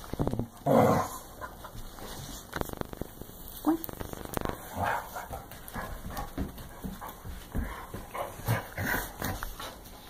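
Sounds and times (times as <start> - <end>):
dogs grunting and growling: 0.5 - 1.6, 3.7 - 5.4
scuffling on a rug: 1.7 - 10.0.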